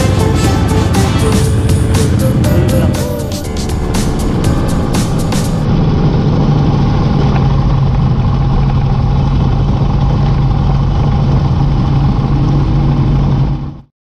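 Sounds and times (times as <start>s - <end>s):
background music: 0.0s - 5.9s
motorcycle engine running: 0.0s - 13.8s.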